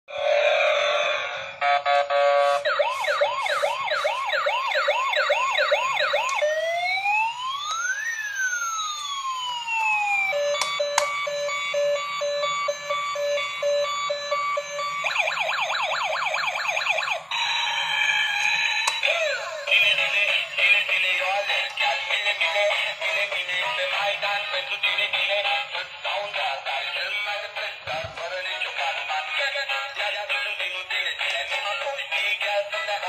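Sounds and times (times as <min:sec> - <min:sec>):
toy electronic siren: 0:01.6 - 0:27.5.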